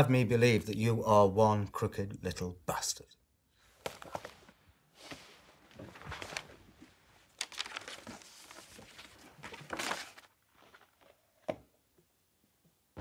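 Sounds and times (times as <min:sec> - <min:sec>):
paper rustling and crinkling: 0:03.8 - 0:11.2.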